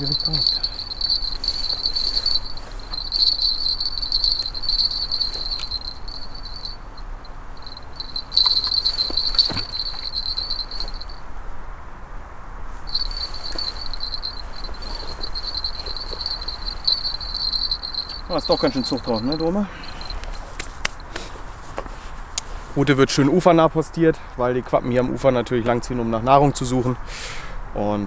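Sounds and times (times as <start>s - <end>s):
bite bell jingling: 0.0s - 11.2s, 12.9s - 20.5s.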